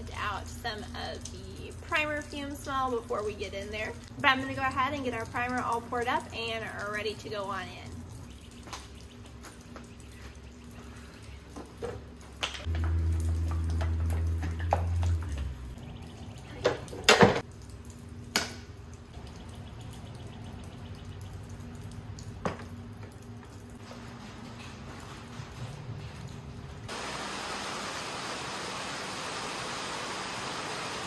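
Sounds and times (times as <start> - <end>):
rain dripping: 0.0 - 31.0
low hum: 12.6 - 17.2.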